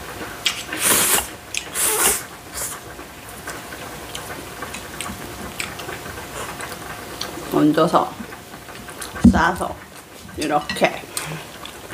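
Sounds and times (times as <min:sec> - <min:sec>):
noodle slurp: 0:00.6 - 0:02.8
chewing and mouth sounds: 0:03.4 - 0:07.4.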